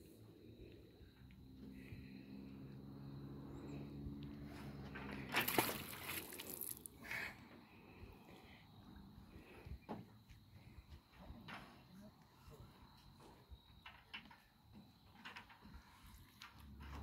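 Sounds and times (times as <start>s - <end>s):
magnet splashing into water: 5.3s - 6.9s.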